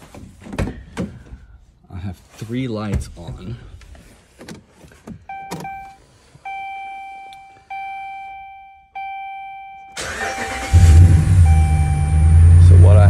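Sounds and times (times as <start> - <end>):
dashboard warning chime dinging: 5.2 - 12.5
engine starting: 10.0 - 11.5.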